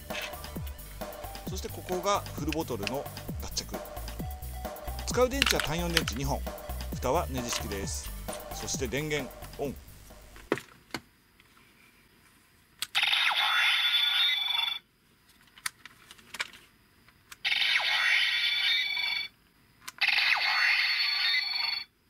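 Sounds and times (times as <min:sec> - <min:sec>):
toy clicks: 0:00.1 - 0:00.6, 0:05.0 - 0:06.3, 0:07.3 - 0:07.9, 0:17.3 - 0:19.3, 0:19.9 - 0:21.9
toy electronic sound effects: 0:12.9 - 0:14.9, 0:17.4 - 0:19.3, 0:20.0 - 0:21.9.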